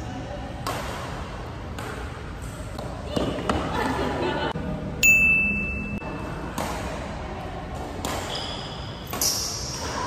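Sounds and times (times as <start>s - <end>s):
racket hitting shuttlecock: 0.6s - 3.7s, 6.4s - 7.1s, 7.7s - 10.0s
shoe squeaks: 8.2s - 10.0s.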